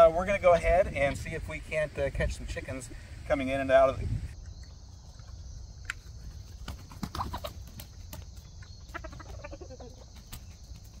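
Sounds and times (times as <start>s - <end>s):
chickens clucking: 5.0s - 11.0s.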